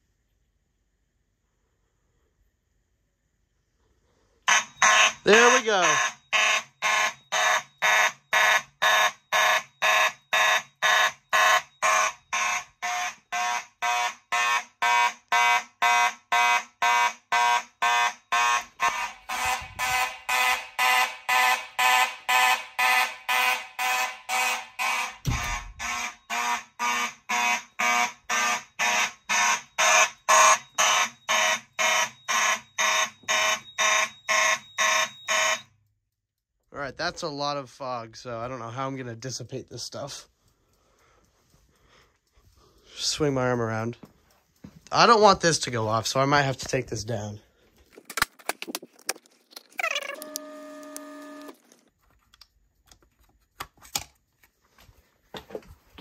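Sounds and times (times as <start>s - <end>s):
fire alarm horns pulsing: 4.4s - 35.9s, 49.9s - 51.6s.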